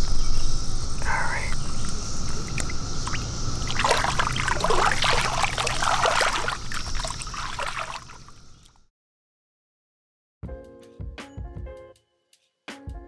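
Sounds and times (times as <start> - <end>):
cicada drone: 0.0 - 8.8
water splashing and sloshing: 1.4 - 8.8.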